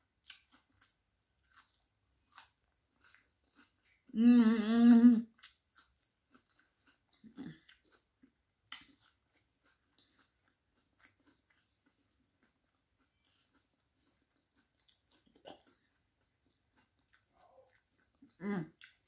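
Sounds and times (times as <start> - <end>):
quiet chewing: 0.2 - 4.2, 5.2 - 19.0
woman humming with mouth full: 4.2 - 5.3.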